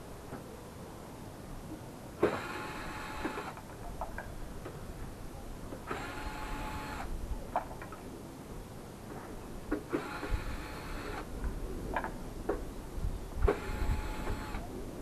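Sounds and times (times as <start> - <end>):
electric screwdriver whirring: 2.2 - 3.6, 5.9 - 7.1, 13.5 - 14.6.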